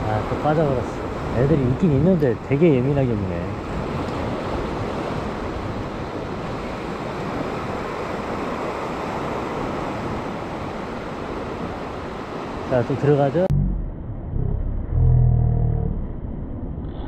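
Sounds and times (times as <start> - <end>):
wind on microphone: 0.0 - 12.7
sea surf washing against rocks: 0.0 - 13.5.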